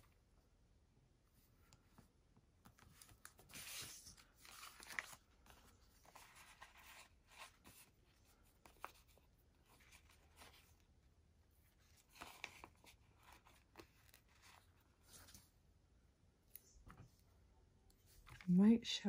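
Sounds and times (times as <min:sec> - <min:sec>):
paper rustling: 0:02.6 - 0:10.8, 0:11.7 - 0:15.6.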